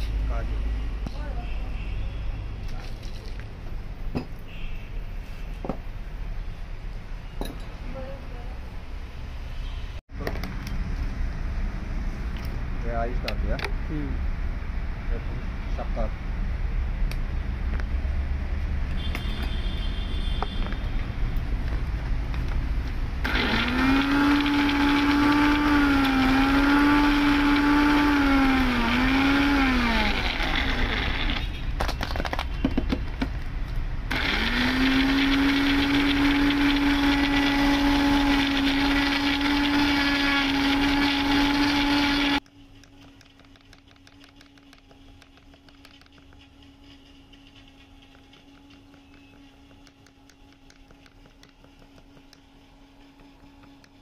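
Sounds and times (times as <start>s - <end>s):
mixer grinder motor whine: 23.2s - 31.5s, 34.1s - 42.5s.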